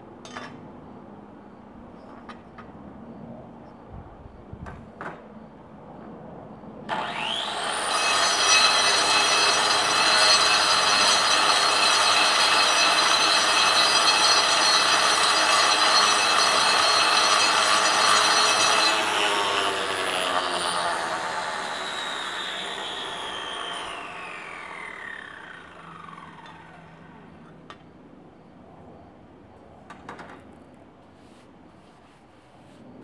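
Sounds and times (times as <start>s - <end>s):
angle grinder cutting stone: 6.9s - 26.8s.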